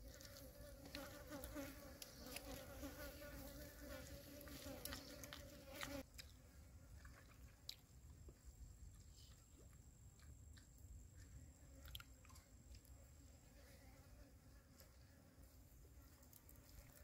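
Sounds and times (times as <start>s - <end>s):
flying insect buzzing: 0.0s - 6.0s.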